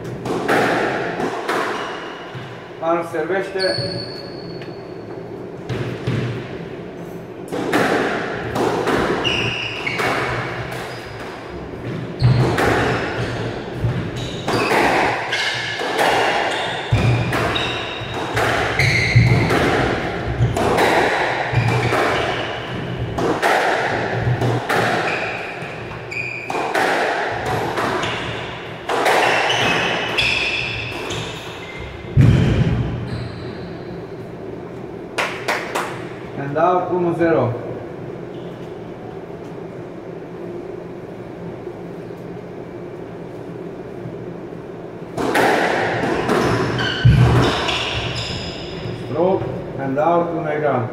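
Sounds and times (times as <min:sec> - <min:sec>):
squash ball hitting walls: 0:00.0 - 0:02.6, 0:05.6 - 0:06.6, 0:07.4 - 0:33.1, 0:45.1 - 0:49.0.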